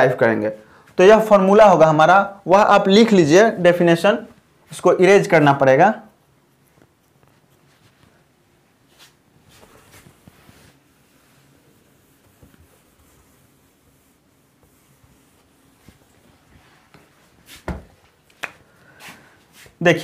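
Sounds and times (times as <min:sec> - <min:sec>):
duster rubbing whiteboard: 0:08.9 - 0:18.0.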